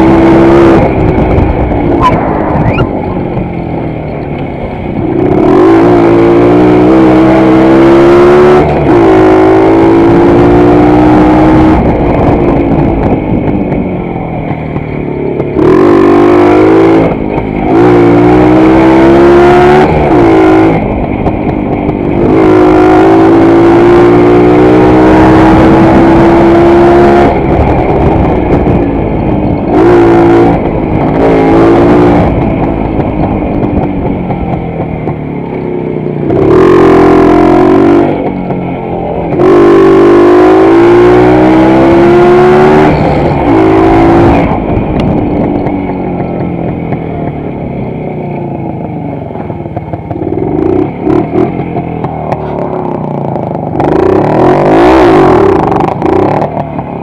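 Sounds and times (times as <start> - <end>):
motorcycle engine accelerating: 0.0 - 57.0
motorcycle throttle blips: 0.7 - 5.6, 27.3 - 41.3, 42.2 - 57.0.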